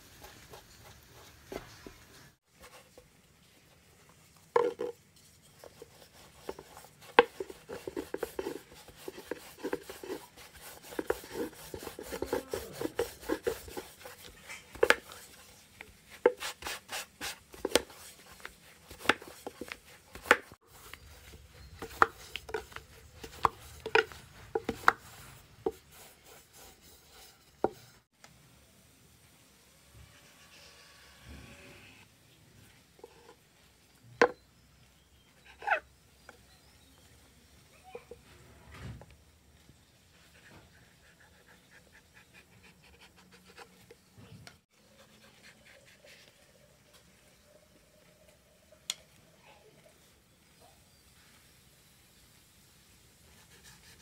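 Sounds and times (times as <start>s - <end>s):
rolling pin rubbing over dough: 4.6s - 28.1s.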